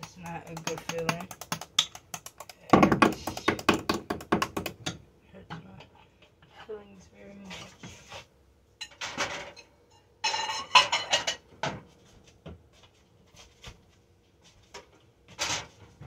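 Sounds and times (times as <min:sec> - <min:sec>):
oven clatters and scrapes: 0:15.3 - 0:16.0.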